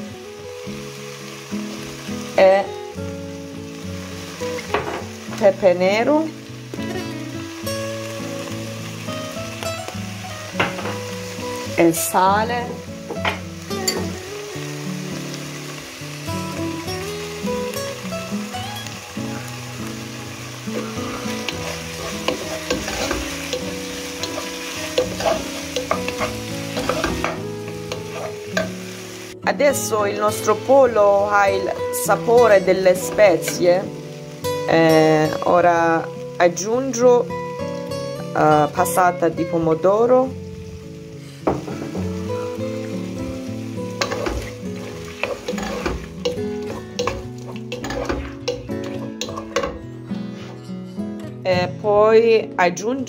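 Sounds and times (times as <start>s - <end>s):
chicken sizzling in pan: 0.0s - 50.6s
wooden spoon scraping pan: 20.7s - 28.7s, 44.0s - 50.7s.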